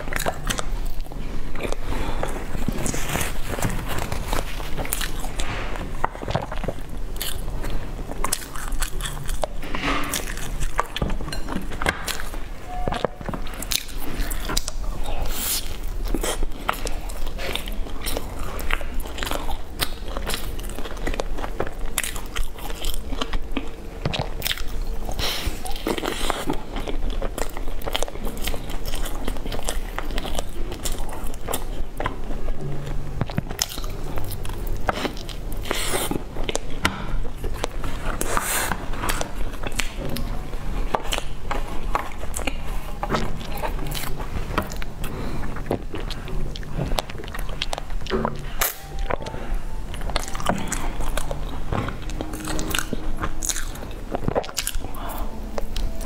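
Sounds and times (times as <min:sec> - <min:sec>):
crispy bun crunching: 0:00.0 - 0:56.0
wet mouth sounds: 0:41.0 - 0:56.0.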